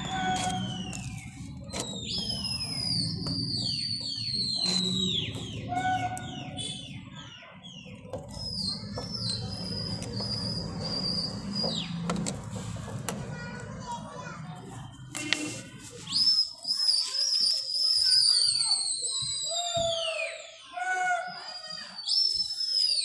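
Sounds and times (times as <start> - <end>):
high falling whistles: 16.1 - 23.0.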